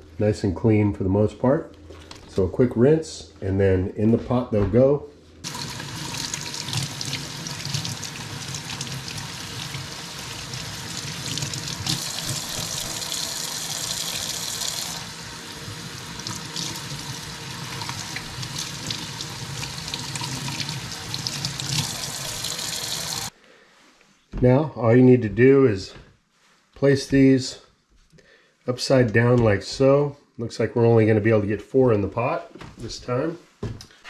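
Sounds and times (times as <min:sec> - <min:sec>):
faucet running into metal sink: 0:05.5 - 0:23.3.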